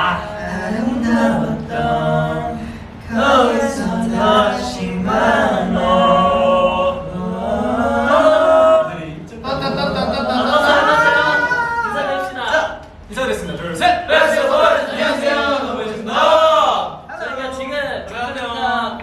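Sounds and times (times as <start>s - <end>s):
men singing unaccompanied: 0.0s - 12.5s.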